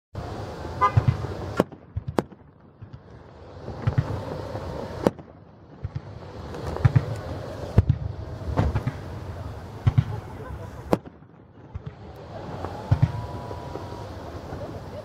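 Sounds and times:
fireworks bursting: 0.6 - 15.0.

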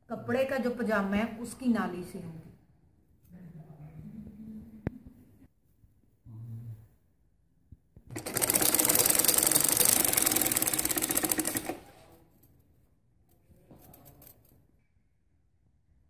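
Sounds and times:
sewing machine stitching: 8.1 - 12.1.

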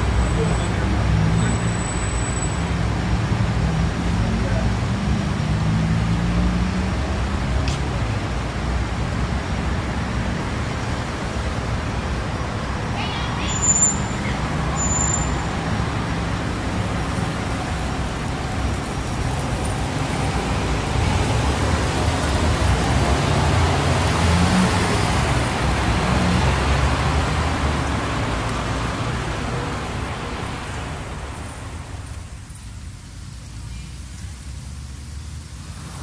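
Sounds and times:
passing vehicles: 0.0 - 36.0.

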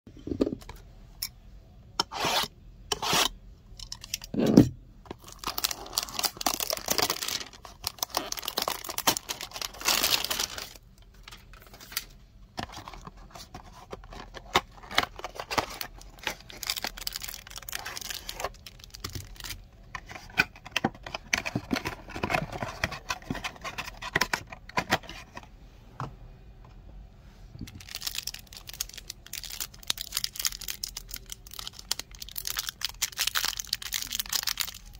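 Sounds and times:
crinkling plastic and paper: 5.1 - 25.3, 27.6 - 34.9
cardboard and cellophane ripping: 5.2 - 10.8.

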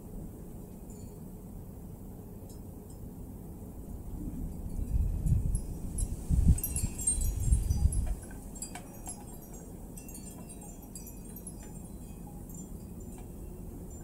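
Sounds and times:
wind chimes tinkling: 0.8 - 1.3, 4.5 - 14.0
wind buffeting microphone: 4.0 - 14.0.

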